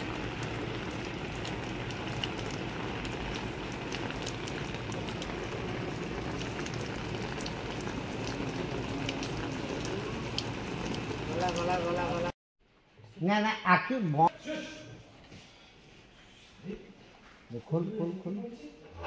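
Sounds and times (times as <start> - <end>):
raindrops ticking on surfaces: 0.0 - 12.4
steady rain: 0.0 - 12.4.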